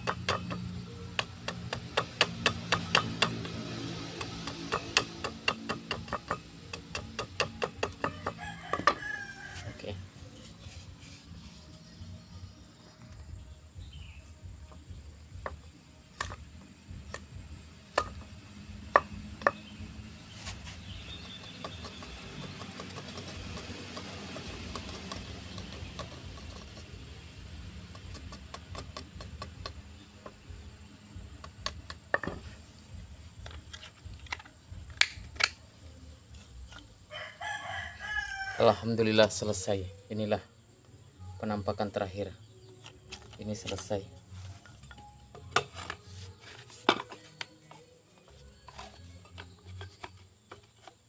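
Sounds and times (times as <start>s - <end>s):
blade knocking on wood: 0.0s - 3.6s, 4.2s - 9.0s, 21.1s - 26.7s
blade scraping wood: 20.2s - 26.9s.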